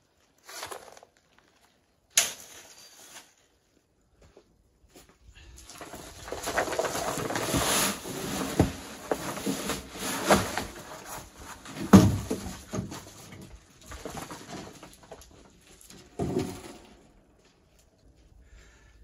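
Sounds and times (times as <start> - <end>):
gravel pouring and rattling: 5.6 - 17.2
wheelbarrow knocks: 11.6 - 14.9, 16.0 - 17.1.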